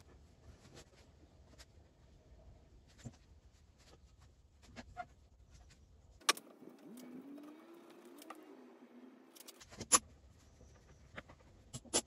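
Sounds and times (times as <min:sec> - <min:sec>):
faint wavering hum: 0:06.2 - 0:11.5.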